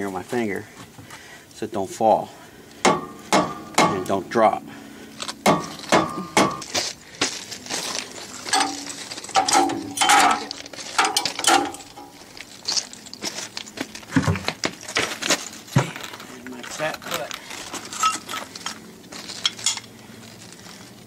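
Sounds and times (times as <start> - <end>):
steel tools clinking and knocking: 8.5 - 12.2.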